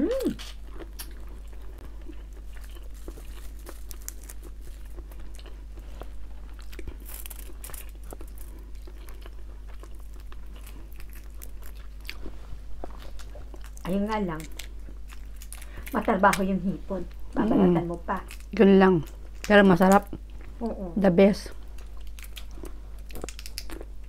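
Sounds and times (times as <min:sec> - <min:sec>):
mouth chewing: 0:00.0 - 0:16.5, 0:21.6 - 0:24.0
shrimp shells crackling: 0:02.4 - 0:05.2, 0:06.8 - 0:12.0.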